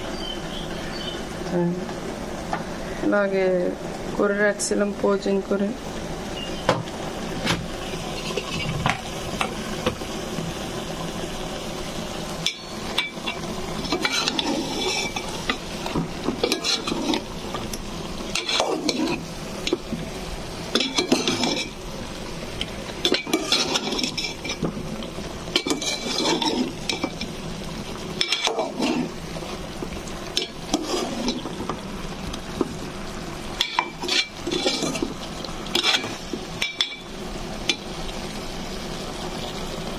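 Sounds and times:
food sizzling in oil: 0.0s - 39.9s
metal spoon scraping a pot: 8.1s - 8.8s, 12.4s - 15.6s, 16.4s - 17.3s, 18.3s - 19.8s, 20.7s - 21.8s, 23.0s - 24.7s, 25.5s - 27.3s, 28.2s - 29.2s, 30.4s - 31.5s, 33.6s - 35.1s, 35.7s - 37.0s.

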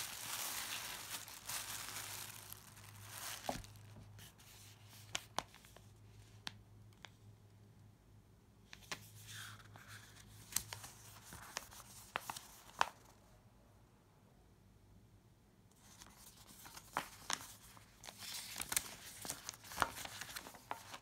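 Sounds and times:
paper rustling: 0.0s - 5.8s, 15.8s - 21.0s.

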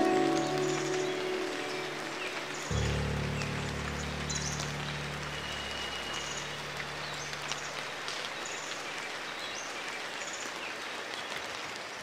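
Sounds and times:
high bird chirps: 0.0s - 7.9s
steady rain falling: 0.0s - 12.0s.

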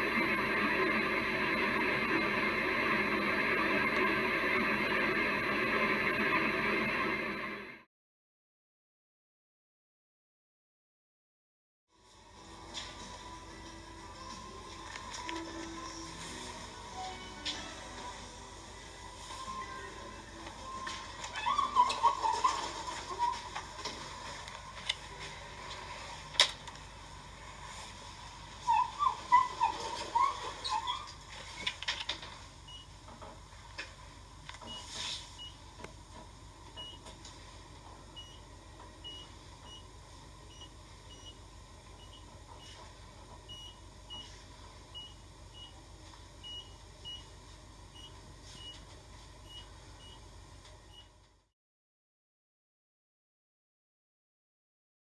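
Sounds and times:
elevator high hum: 0.0s - 7.9s
low machine drone: 0.0s - 7.9s.

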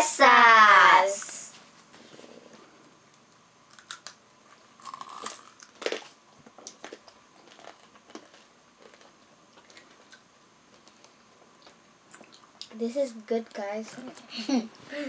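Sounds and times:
chewing crackles: 3.2s - 12.8s
candy shell crunching: 4.8s - 9.1s.

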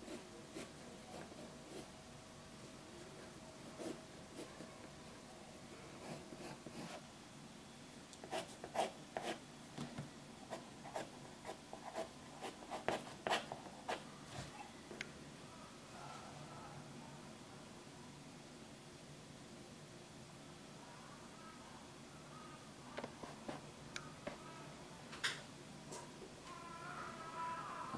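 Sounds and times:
pencil scratching on paper: 8.2s - 9.4s, 10.5s - 14.0s.

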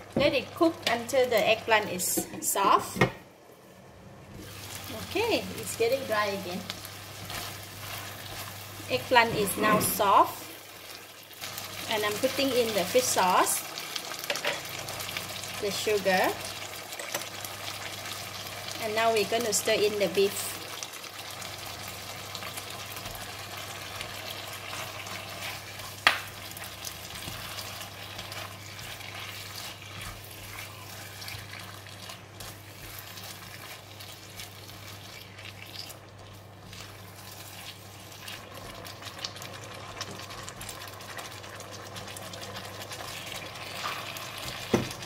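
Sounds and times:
meat sizzling in a wok: 4.4s - 9.3s, 9.9s - 45.0s
plastic spatula stirring: 27.1s - 36.0s.

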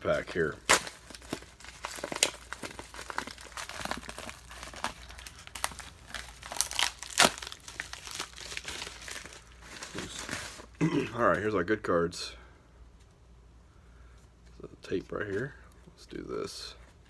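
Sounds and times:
plastic bag crinkling: 0.4s - 10.8s.

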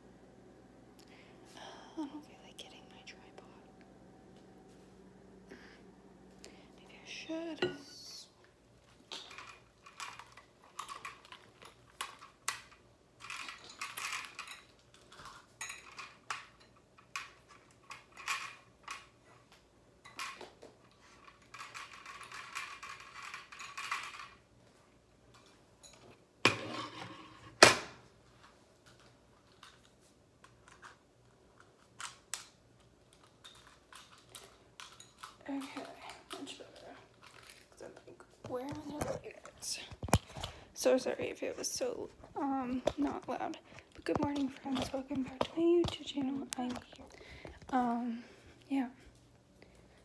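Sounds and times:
small objects clicking and clattering: 8.9s - 24.4s, 28.8s - 37.8s.

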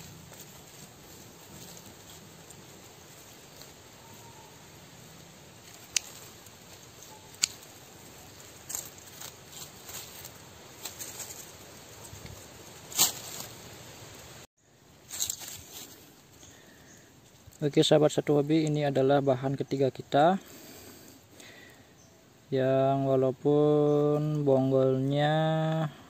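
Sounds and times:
crackly crunch: 0.0s - 4.5s, 5.4s - 13.7s, 15.1s - 16.2s
soil and dry leaves rustling: 0.0s - 26.0s
pruning shears snipping: 5.6s - 11.5s.

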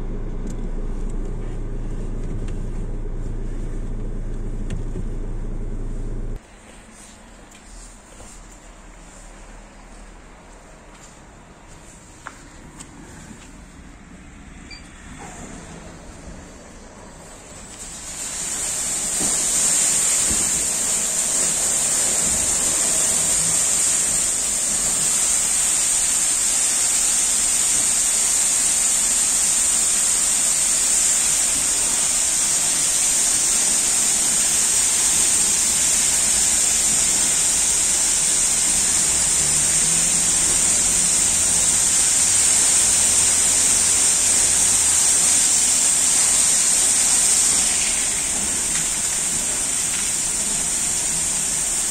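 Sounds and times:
low motor hum: 0.0s - 6.4s
water spray hiss: 17.6s - 51.9s.

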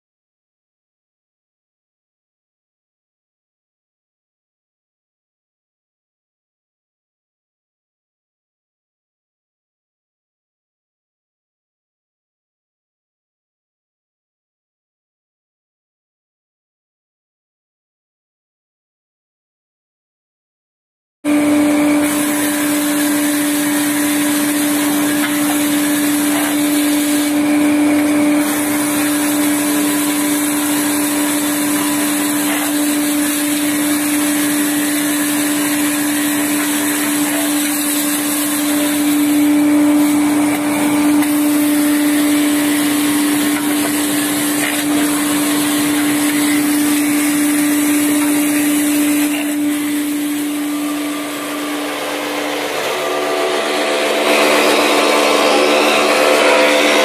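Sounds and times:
woodworking machine humming: 21.3s - 57.0s.

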